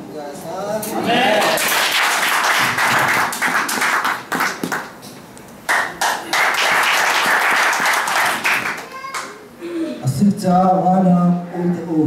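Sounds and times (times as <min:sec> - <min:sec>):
congregation applauding: 0:01.3 - 0:05.0, 0:05.6 - 0:09.3.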